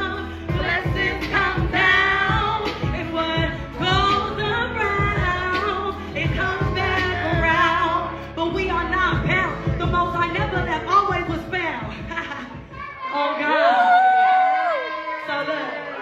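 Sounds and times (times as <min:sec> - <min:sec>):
backing track with bass line: 0:00.0 - 0:12.8
woman singing into microphone: 0:00.0 - 0:14.0.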